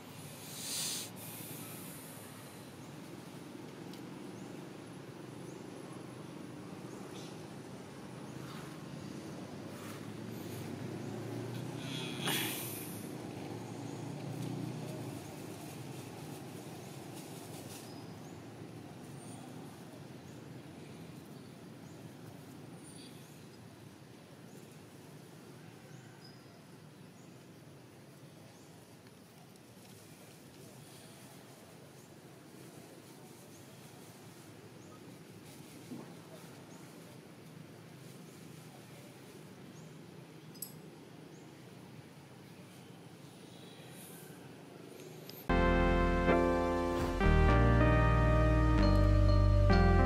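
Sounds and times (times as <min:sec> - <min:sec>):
hissing rustle: 0:00.0 - 0:03.8
outdoor background noise: 0:00.0 - 0:50.0
steady low rumble: 0:45.5 - 0:49.7.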